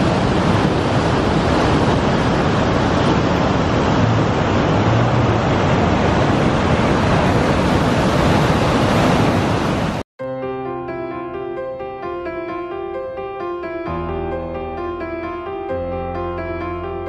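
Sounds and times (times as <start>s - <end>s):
waterfall rushing: 0.0s - 10.0s.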